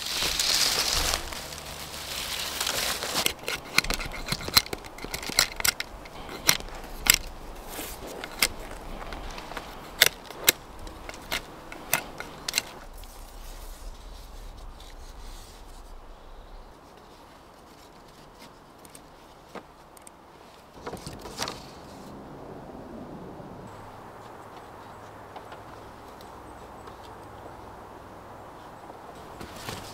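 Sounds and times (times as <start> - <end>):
rustle: 0.0 - 29.9.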